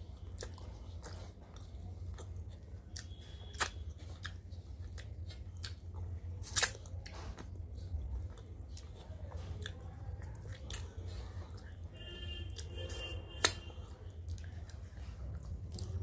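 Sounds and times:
steady low hum: 0.0s - 16.0s
wet mouth clicks chewing: 0.3s - 7.6s.

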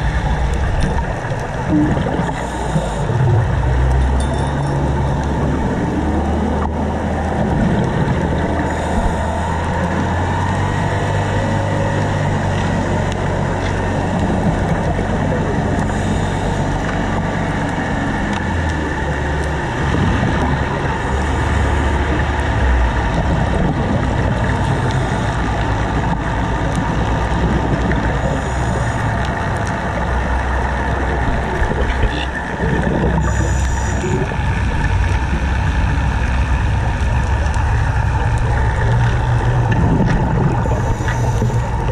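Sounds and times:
exhaled bubbles hissing: 0.0s - 41.9s
low underwater rumble: 0.0s - 41.9s.

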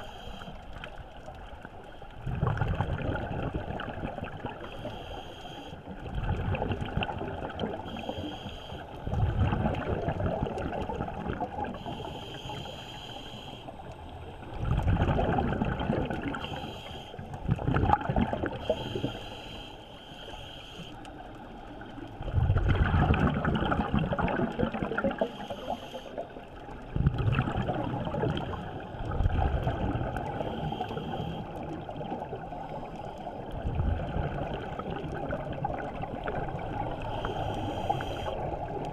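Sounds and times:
regulator inhalation hiss: 0.0s - 0.6s, 4.6s - 5.8s, 7.9s - 9.1s, 11.8s - 13.9s, 16.4s - 17.3s, 18.6s - 21.1s, 25.2s - 26.3s, 30.4s - 31.6s, 37.0s - 38.5s
underwater exhaled bubbles rumbling: 0.7s - 4.7s, 5.9s - 8.2s, 9.0s - 12.1s, 13.9s - 19.1s, 21.6s - 25.4s, 26.2s - 38.9s.

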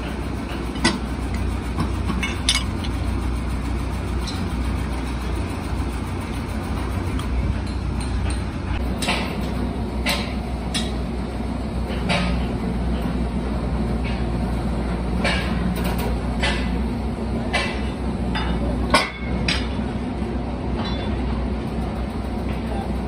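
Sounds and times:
hydraulic press humming: 0.0s - 23.0s
sharp metal clinks and knocks: 2.1s - 3.0s.

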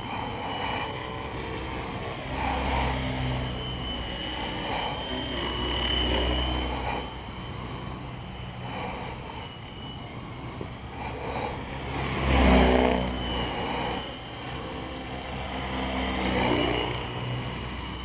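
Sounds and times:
rc helicopter motor whine: 0.0s - 18.0s
rotor blades whirring: 0.0s - 18.0s.

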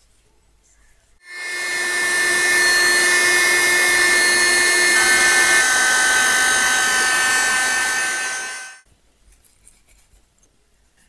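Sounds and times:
heat gun fan whirring: 1.3s - 8.8s.

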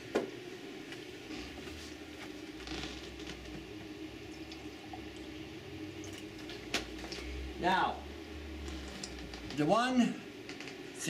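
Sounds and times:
steady low hum: 0.0s - 11.0s
water trickling into a glass jar: 4.2s - 7.2s.

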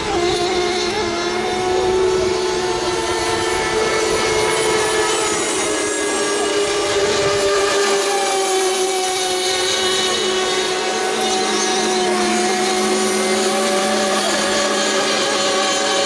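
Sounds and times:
model boat engines whining: 0.0s - 16.0s.

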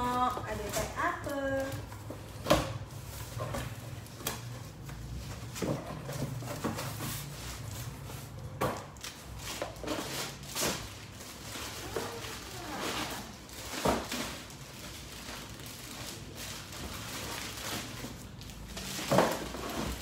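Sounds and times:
items knocking in box: 18.8s - 20.0s.

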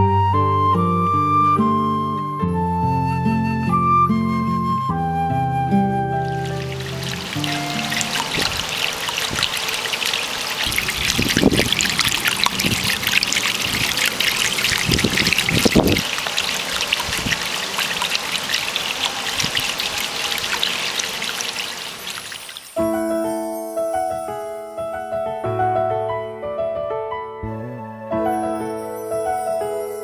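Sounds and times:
water trickling into basin: 6.2s - 22.8s
dull low thumps: 27.4s - 28.3s.

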